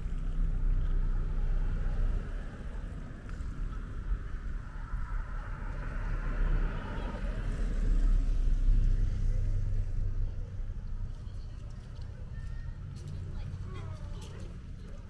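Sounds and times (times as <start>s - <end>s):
car driving past: 0.0s - 10.1s.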